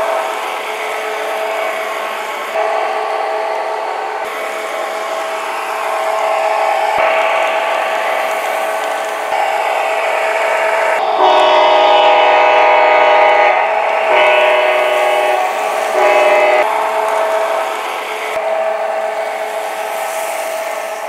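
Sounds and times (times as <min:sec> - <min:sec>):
model train motor whine: 0:00.0 - 0:21.0
train wheels on track: 0:00.0 - 0:21.0.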